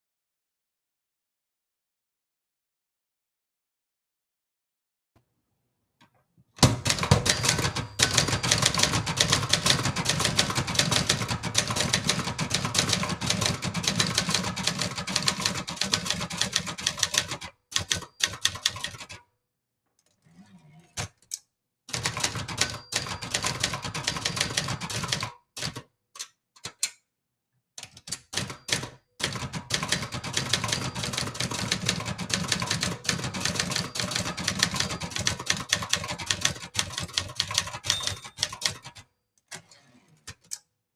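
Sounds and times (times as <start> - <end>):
typewriter carriage return: 6.6 - 19.2, 21.9 - 25.8, 27.8 - 40.6
typewriter typing clatter: 6.6 - 19.2, 21.9 - 25.9, 27.8 - 39.6.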